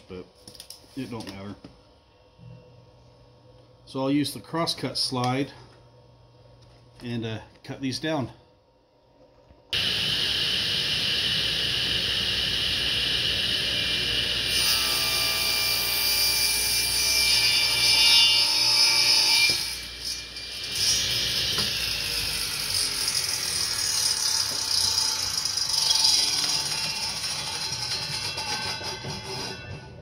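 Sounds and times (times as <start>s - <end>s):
table saw cutting wood: 9.8s - 29.7s.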